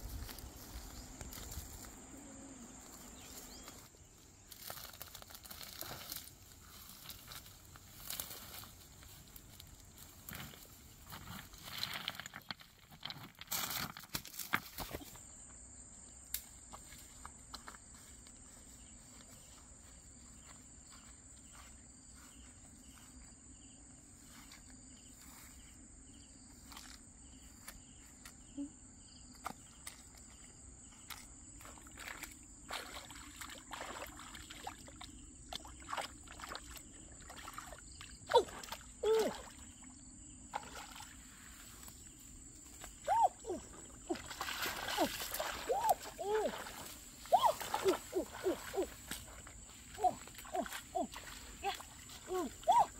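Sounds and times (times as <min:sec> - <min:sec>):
hands splashing in muddy puddle: 0:31.6 - 0:39.6, 0:40.5 - 0:41.5, 0:43.1 - 0:52.9.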